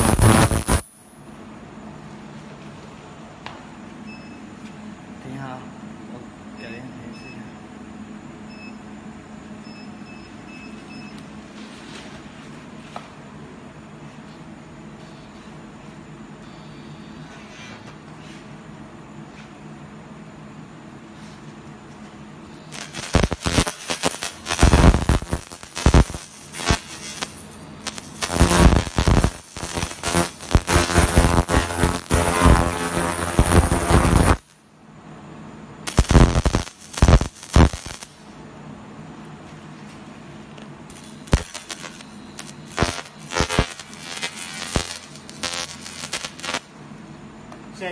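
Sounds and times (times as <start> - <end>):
laser cleaning crackling: 0.0 - 0.9, 22.7 - 34.6, 35.9 - 38.2, 40.9 - 46.7
machine humming: 21.8 - 47.6.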